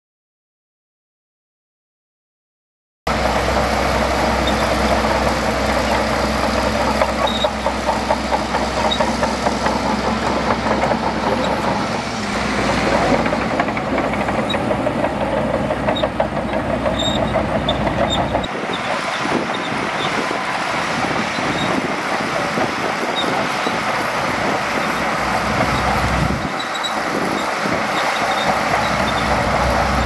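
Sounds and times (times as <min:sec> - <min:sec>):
bulldozer diesel engine droning: 0:03.1 - 0:30.0
rapid rattling clicks and clanks: 0:12.9 - 0:18.5.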